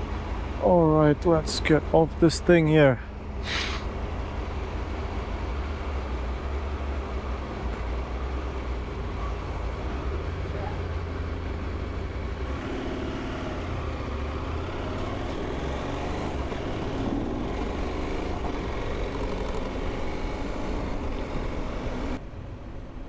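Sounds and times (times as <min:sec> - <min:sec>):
motorcycle engine running: 0:12.0 - 0:22.2.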